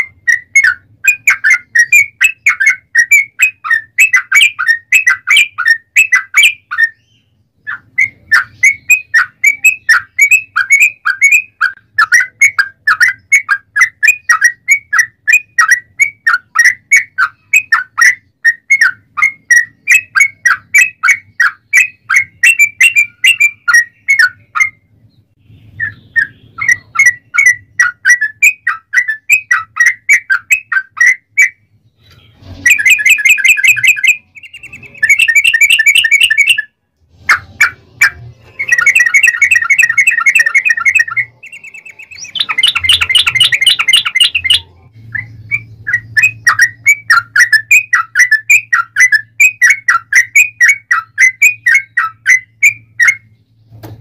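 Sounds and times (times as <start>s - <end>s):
harsh noisy bird call: 25.4s - 53.4s
bulbul singing bubbling chirps: 32.7s - 36.6s.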